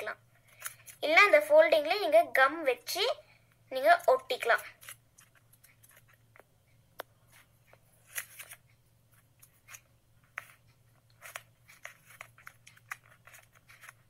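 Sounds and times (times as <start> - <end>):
paper crinkling and rustling: 4.7 - 6.2, 7.3 - 14.0.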